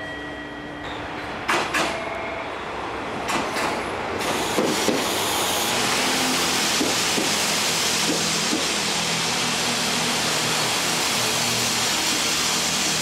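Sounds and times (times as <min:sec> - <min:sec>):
train rushing rumble: 0:02.7 - 0:13.0
train wheels clicking over rail joints: 0:03.2 - 0:08.9.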